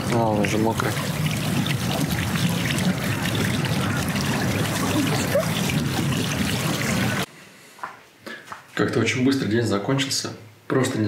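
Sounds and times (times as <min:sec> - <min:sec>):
water trickling and splashing: 0:00.0 - 0:07.3.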